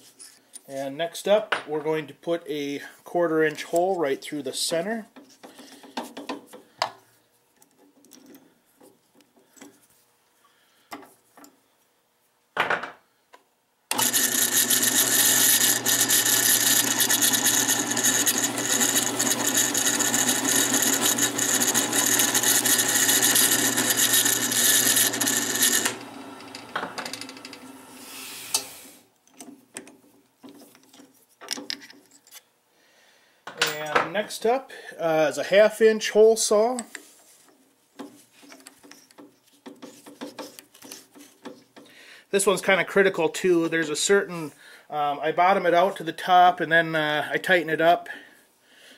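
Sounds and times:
drill press motor running: 13.9s - 28.7s.

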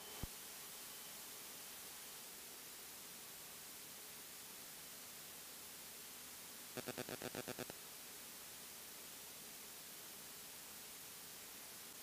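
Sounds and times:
faint radio hiss: 0.0s - 12.0s.

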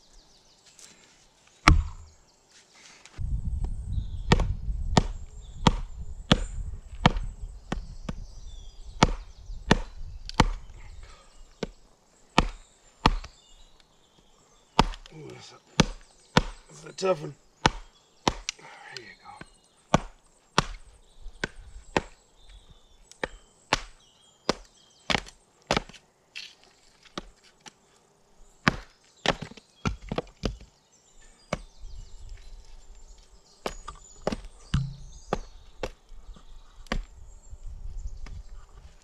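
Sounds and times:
baton knocking on knife spine: 1.7s - 2.1s, 34.7s - 35.5s.

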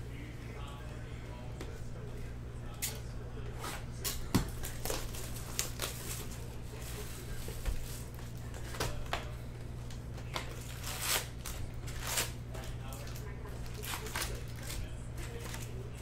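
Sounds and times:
low steady hum: 0.0s - 16.0s
cards rustling: 2.8s - 16.0s
wrappers crinkling and tearing: 4.0s - 9.3s, 9.9s - 16.0s.

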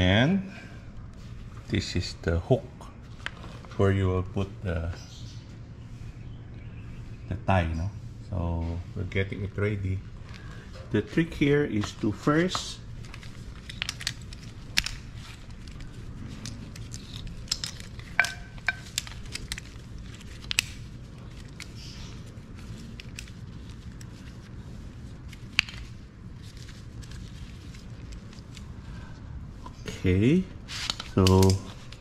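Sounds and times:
steady low hum: 0.0s - 32.0s
metal hooks and buckles clicking: 13.0s - 19.7s.

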